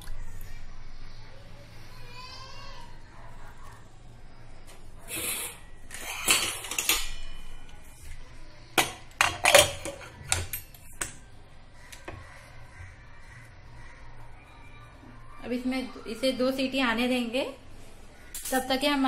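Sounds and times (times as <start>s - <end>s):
metal lid clanking: 8.8s - 11.1s.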